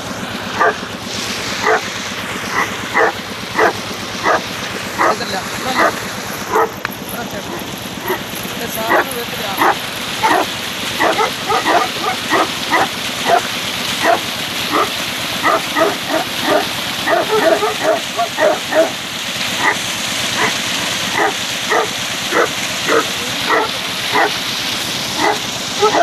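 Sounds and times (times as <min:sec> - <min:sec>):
dog barking: 0:00.6 - 0:00.8, 0:01.6 - 0:01.8, 0:02.5 - 0:05.2, 0:05.8 - 0:06.8, 0:07.5 - 0:08.3, 0:08.9 - 0:19.0, 0:19.6 - 0:19.8, 0:20.4 - 0:24.4, 0:25.2 - 0:26.0.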